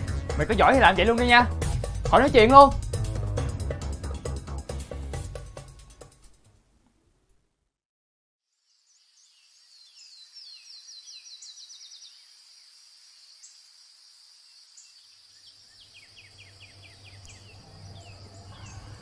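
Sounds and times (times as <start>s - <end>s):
bird chirping: 8.5s - 13.8s, 14.4s - 19.0s
insect drone: 8.5s - 19.0s.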